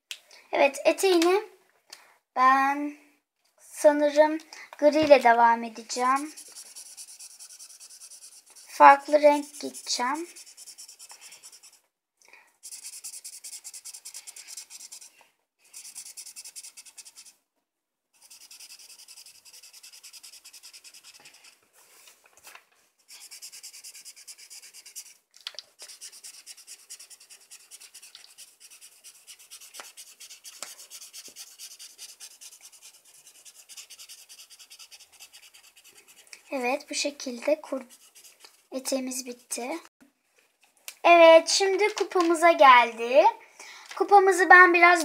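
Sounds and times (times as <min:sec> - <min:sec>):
felt-tip marker scratching on paper: 0:06.0 - 0:11.8, 0:12.6 - 0:17.4, 0:18.2 - 0:21.6, 0:23.1 - 0:25.2, 0:25.8 - 0:36.7, 0:37.7 - 0:39.6.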